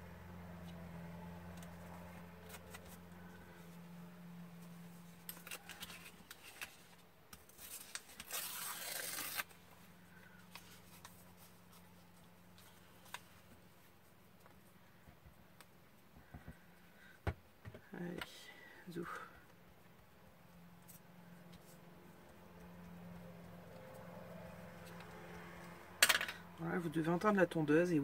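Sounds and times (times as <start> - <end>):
paper crackling: 5.0 - 13.5
paper tearing: 5.2 - 9.7.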